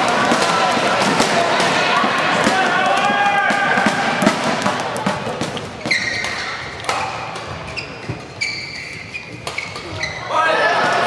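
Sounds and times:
rackets hitting shuttlecock: 0.0s - 8.3s
court shoes squeaking: 4.2s - 11.0s.

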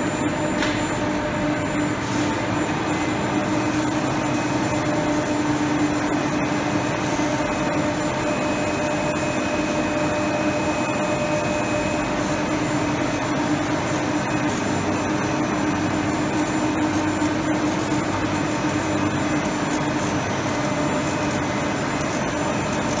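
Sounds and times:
high machine whine: 0.0s - 23.0s
machine hum: 0.0s - 23.0s.

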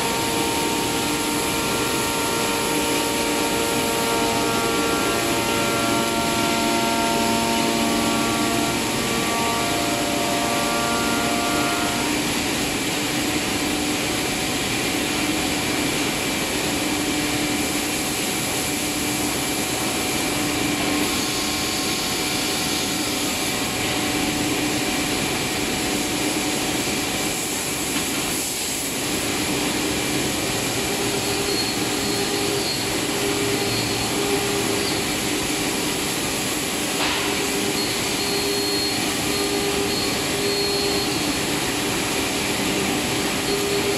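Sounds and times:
wood router milling with high whine: 0.0s - 12.2s.

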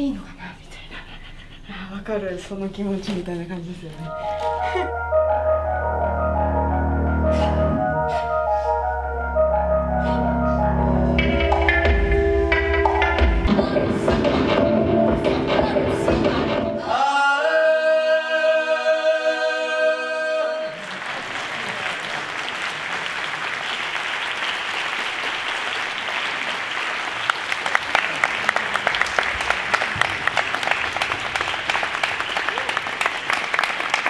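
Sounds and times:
stage music held chord: 4.1s - 20.8s
audience applause: 20.7s - 34.0s.

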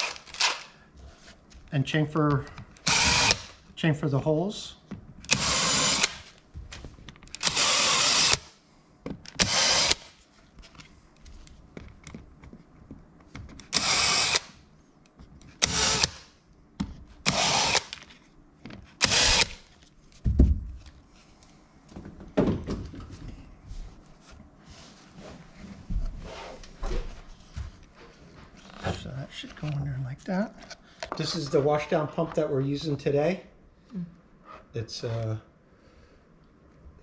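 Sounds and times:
cordless drill cutting plastic: 0.0s - 0.7s, 2.8s - 3.6s, 5.3s - 6.3s, 7.4s - 8.5s, 9.4s - 10.1s, 13.6s - 14.5s, 15.6s - 16.2s, 17.2s - 18.0s, 19.0s - 19.6s.

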